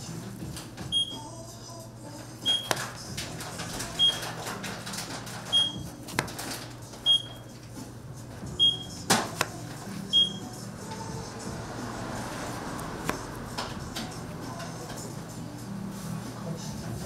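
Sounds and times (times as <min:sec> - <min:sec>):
appliance electronic beep: 0:00.9 - 0:01.2, 0:02.5 - 0:02.7, 0:05.5 - 0:05.9, 0:07.0 - 0:07.5, 0:08.6 - 0:09.0, 0:10.1 - 0:10.5
knife slicing strawberries: 0:06.0 - 0:06.4, 0:09.1 - 0:10.0, 0:12.5 - 0:13.4
knife tapping plastic cutting board: 0:06.1 - 0:06.4.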